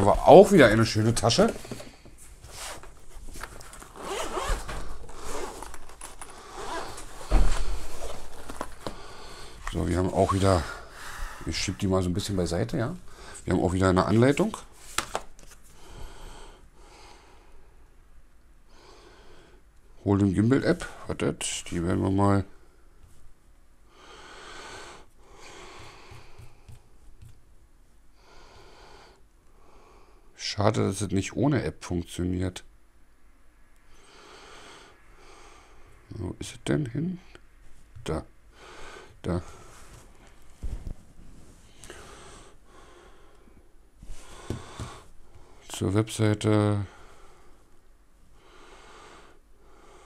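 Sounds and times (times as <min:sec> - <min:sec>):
zipper rasping open: 0:03.6 - 0:08.8
soft breathing: 0:04.0 - 0:12.0, 0:13.0 - 0:13.5, 0:15.7 - 0:17.9, 0:22.5 - 0:27.2, 0:38.5 - 0:45.7, 0:46.8 - 0:50.0.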